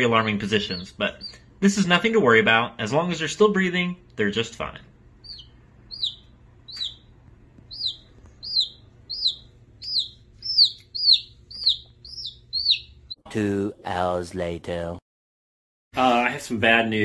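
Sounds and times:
baby chick peeping: 0.0 - 2.0, 5.2 - 13.2.

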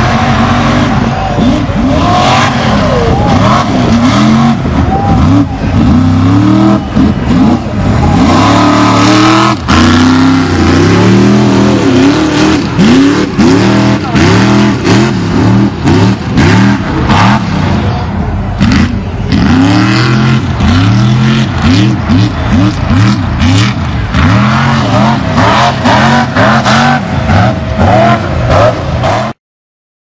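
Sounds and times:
truck engine revving: 0.0 - 29.4.

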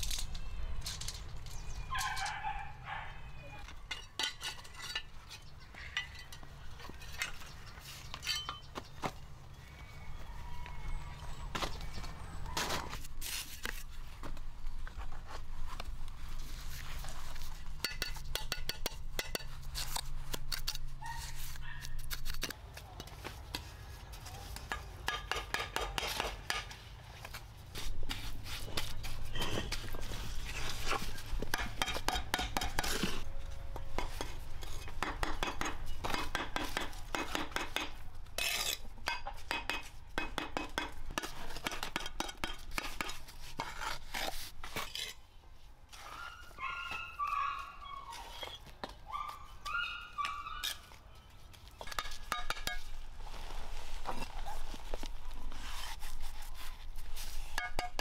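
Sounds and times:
trowel scraping mortar: 34.0 - 39.0, 40.6 - 45.2.

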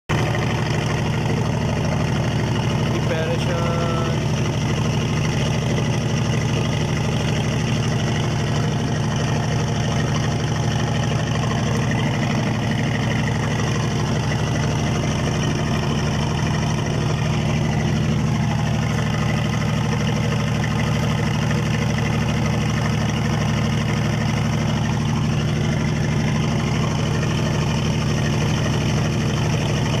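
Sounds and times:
boat engine droning: 0.1 - 30.0.

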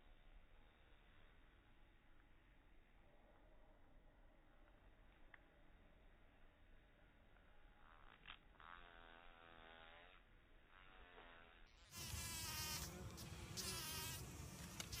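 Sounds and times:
bee buzzing: 8.6 - 15.0.

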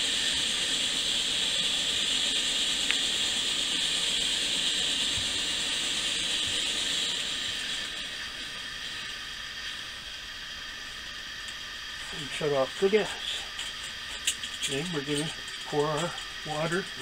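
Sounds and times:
camp stove burner hissing: 0.0 - 17.0.

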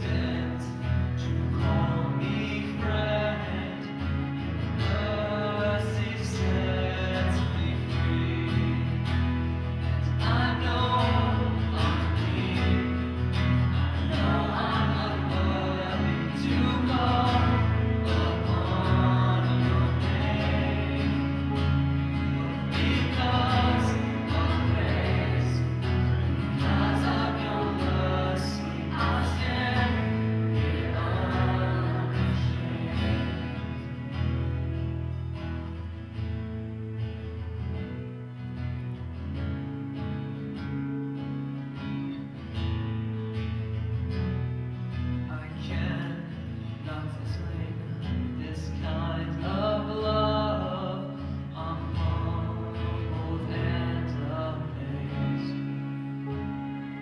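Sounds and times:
man singing lead vocal: 0.0 - 33.8, 45.3 - 56.0
voices singing along: 0.0 - 34.1
strummed guitars: 0.0 - 57.0.

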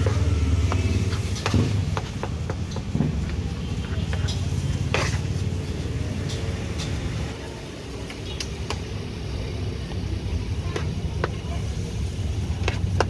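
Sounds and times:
food handling clicks and taps: 0.0 - 3.4
road traffic rumble: 0.0 - 13.0.

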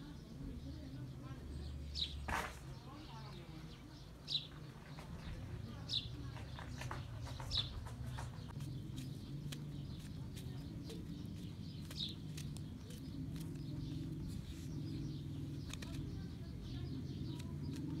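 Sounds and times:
knife clicks slicing mushrooms: 15.6 - 16.1, 17.1 - 18.0.

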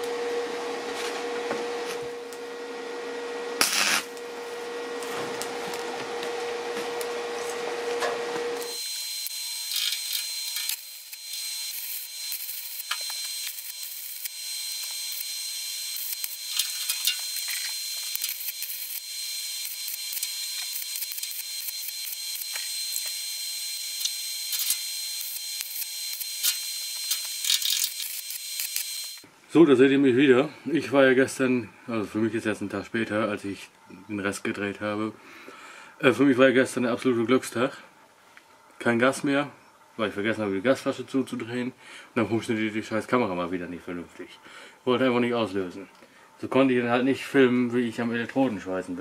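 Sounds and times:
steady high whine: 0.0 - 29.2
welding arc crackling: 3.6 - 4.3, 8.6 - 29.2.

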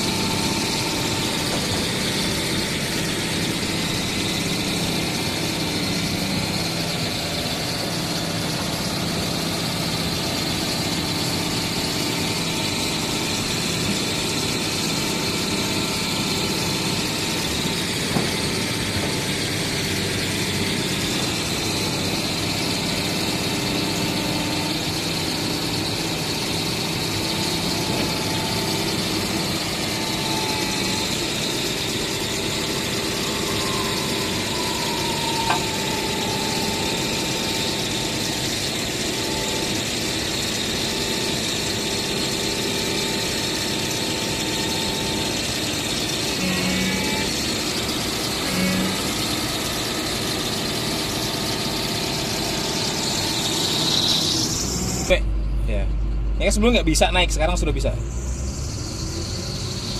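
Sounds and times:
excavator diesel engine running: 0.0 - 59.9
hydraulics working: 0.0 - 59.9
faint whine: 13.2 - 59.9.

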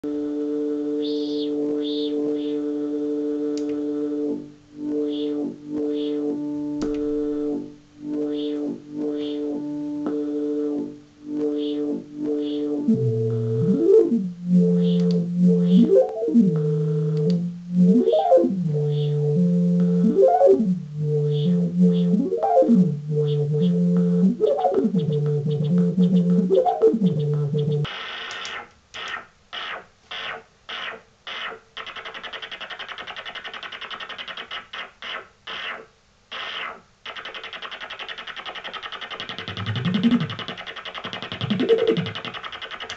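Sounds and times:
synth drone swooping in pitch: 4.8 - 27.9
chopped synth noise hiss: 22.9 - 42.9.

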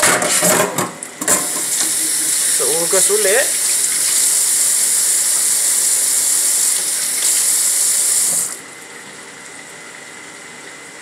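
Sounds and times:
tap water running into sink: 1.2 - 9.2.

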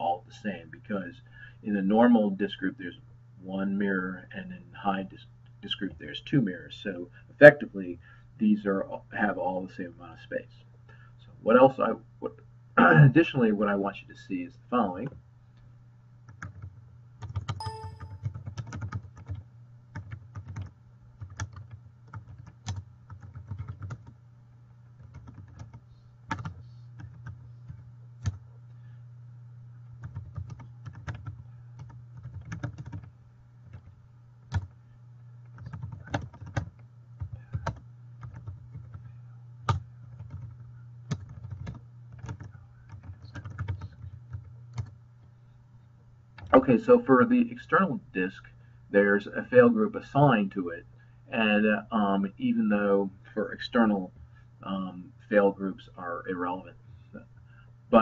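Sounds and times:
steady low hum: 0.0 - 58.0
computer keyboard typing: 16.3 - 24.1, 25.0 - 28.4, 30.0 - 34.8, 35.4 - 39.0, 39.7 - 45.0.

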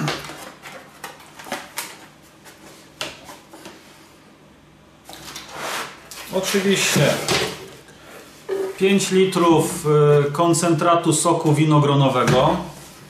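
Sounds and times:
rustling scrape: 5.4 - 7.3.

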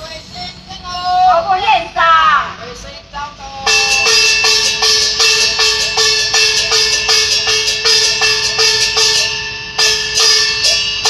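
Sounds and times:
gong and cymbal percussion: 3.6 - 11.0.

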